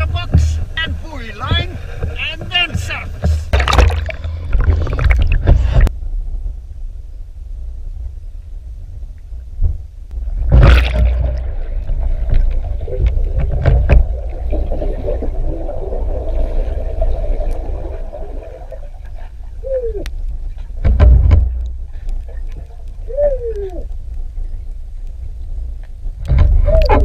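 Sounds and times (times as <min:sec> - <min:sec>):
rush of water: 0:00.0 - 0:05.9, 0:10.2 - 0:27.0
wavering gurgle: 0:00.0 - 0:05.9, 0:10.3 - 0:20.7
low underwater rumble: 0:00.0 - 0:27.0.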